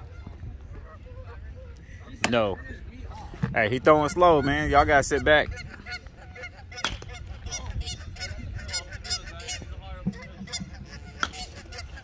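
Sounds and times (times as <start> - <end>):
geese honking: 0.0 - 2.2, 3.8 - 12.0
bat hitting ball: 6.8 - 7.2, 10.1 - 11.6.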